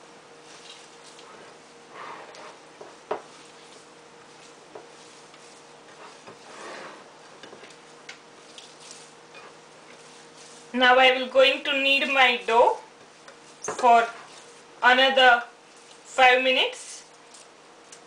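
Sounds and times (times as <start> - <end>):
faint steady hum: 0.0 - 18.0
hands kneading dough: 0.2 - 14.8.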